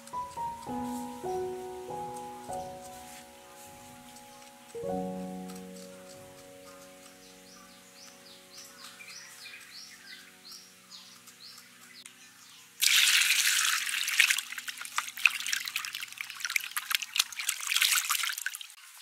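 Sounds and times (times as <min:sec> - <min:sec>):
water pouring into a bowl: 0:12.8 - 0:18.8.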